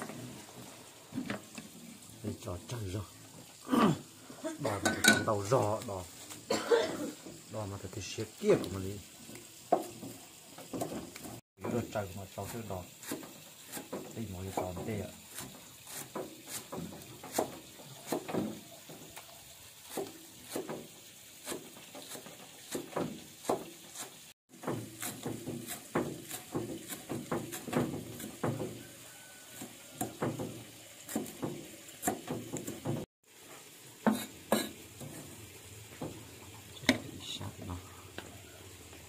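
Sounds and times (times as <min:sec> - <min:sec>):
cleaver chopping on wooden block: 0:24.6 - 0:28.8.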